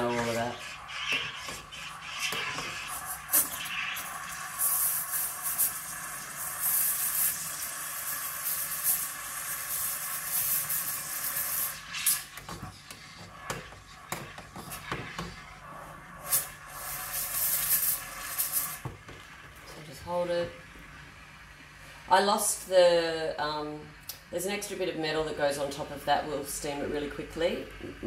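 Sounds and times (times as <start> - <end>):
steam spurts: 0.0 - 18.8
steam wand hissing into milk: 0.0 - 18.8.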